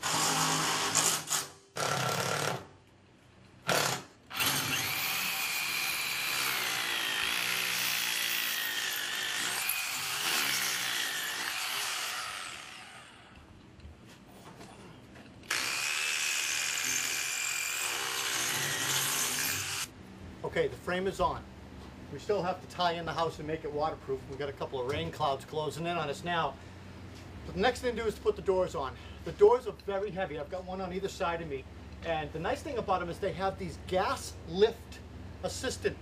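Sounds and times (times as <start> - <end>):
cordless drill whining: 3.7 - 8.3.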